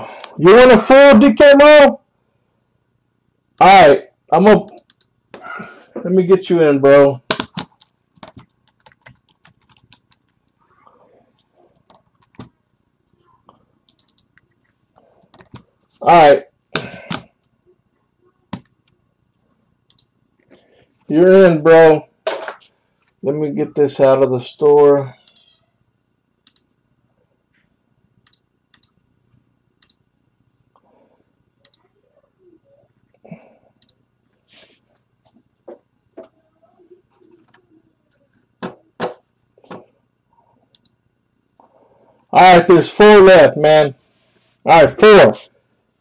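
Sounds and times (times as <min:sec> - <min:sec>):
faint low hum: 0:01.9 - 0:46.0
computer mouse clicks: 0:04.7 - 0:05.1, 0:13.8 - 0:14.6, 0:19.9 - 0:20.1, 0:26.4 - 0:26.8, 0:28.2 - 0:29.0, 0:29.8 - 0:30.0, 0:31.6 - 0:31.9, 0:33.8 - 0:34.0, 0:40.7 - 0:41.0.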